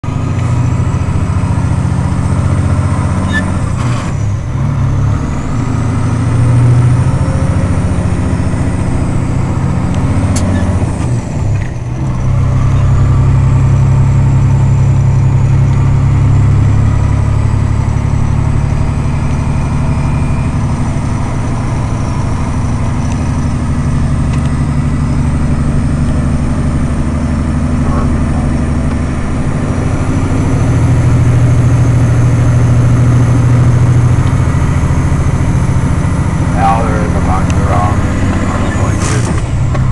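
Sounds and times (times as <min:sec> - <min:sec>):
diesel truck engine running: 0:00.0 - 0:39.9.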